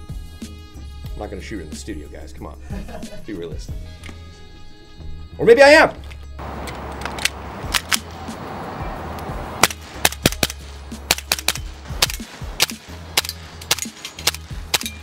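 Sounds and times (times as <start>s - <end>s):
background music: 0.0s - 15.0s
airsoft pistol shots: 9.6s - 15.0s.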